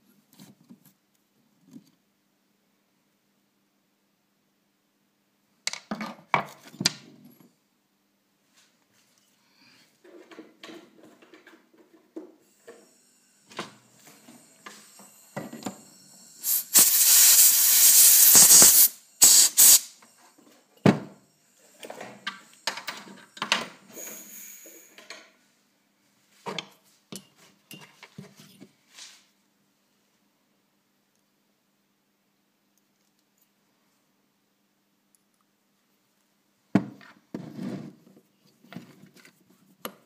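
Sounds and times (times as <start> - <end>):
tools handled on a workbench: 10.0 - 12.8, 26.4 - 29.1
loud hiss: 12.6 - 20.0, 23.8 - 25.0.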